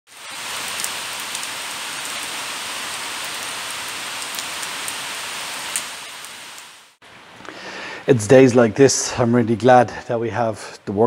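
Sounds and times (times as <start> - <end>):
rain on concrete: 0.1 - 7.4.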